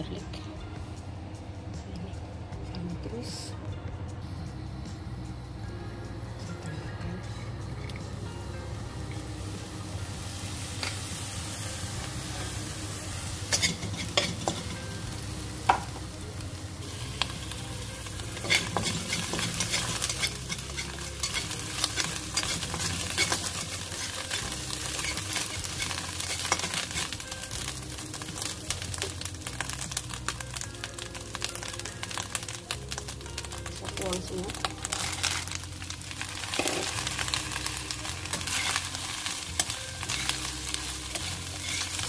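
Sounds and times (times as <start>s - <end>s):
garlic sizzling in oil: 9.0s - 42.0s
spatula scraping wok: 12.2s - 15.0s, 17.0s - 29.9s, 34.9s - 42.0s.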